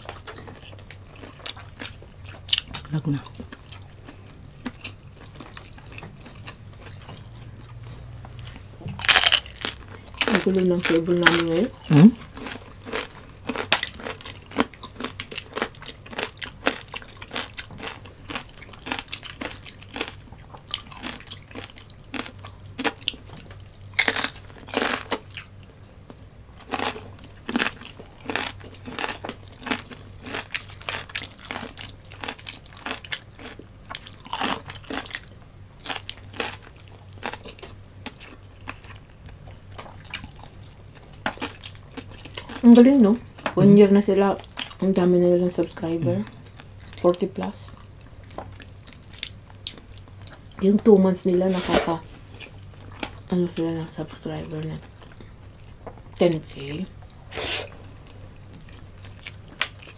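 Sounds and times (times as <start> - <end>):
crunching and chewing: 0.0 - 43.7, 44.3 - 44.8, 45.4 - 59.9
wet mouth sounds: 51.5 - 52.0, 57.2 - 58.0.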